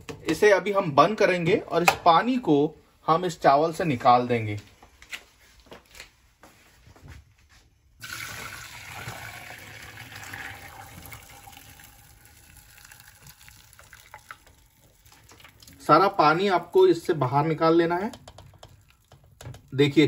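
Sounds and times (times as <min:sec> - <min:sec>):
water pouring from a pot: 0:08.0 - 0:17.1, 0:18.2 - 0:19.8.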